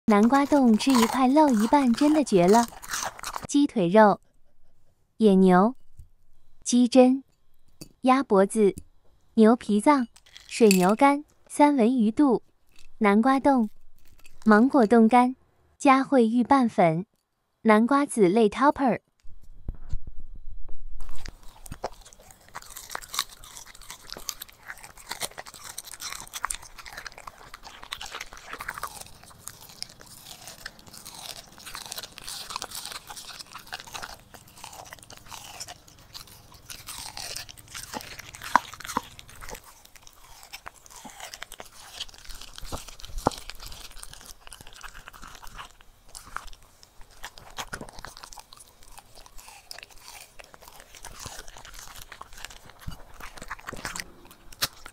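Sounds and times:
dog crunching food: 0:00.1 - 0:03.5, 0:09.9 - 0:11.5, 0:12.6 - 0:13.0, 0:13.6 - 0:15.0, 0:21.0 - 0:54.9.

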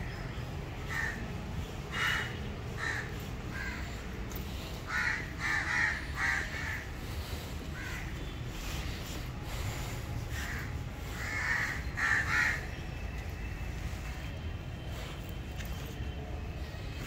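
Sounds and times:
crows cawing: 0:00.0 - 0:08.4, 0:09.5 - 0:13.1.

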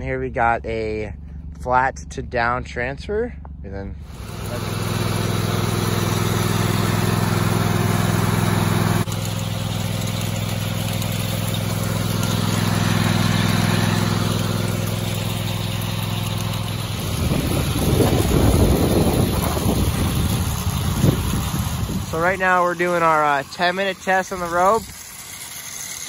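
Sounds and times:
lawn mower engine running: 0:04.0 - 0:26.0
wind buffeting microphone: 0:16.9 - 0:22.2.

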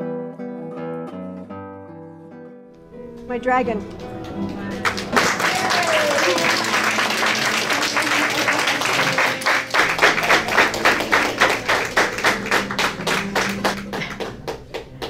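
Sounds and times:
audience applauding: 0:03.8 - 0:15.0.

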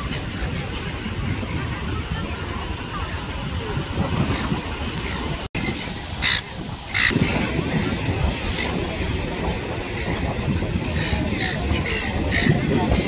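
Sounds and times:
gulls squawking: 0:05.6 - 0:08.8, 0:10.8 - 0:13.0.

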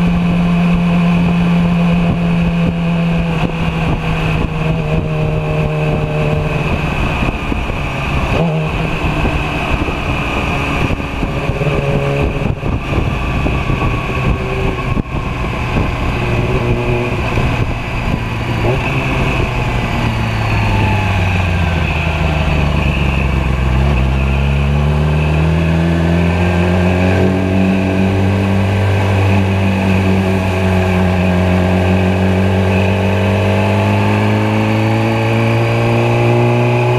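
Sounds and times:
motorcycle engine accelerating: 0:00.0 - 0:36.9.

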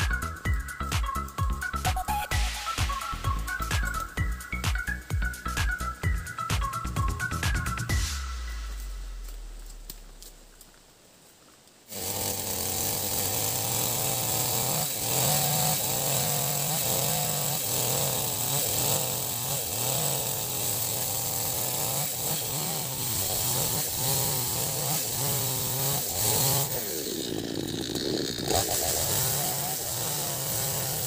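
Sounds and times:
chainsaw cutting log: 0:11.9 - 0:31.0.

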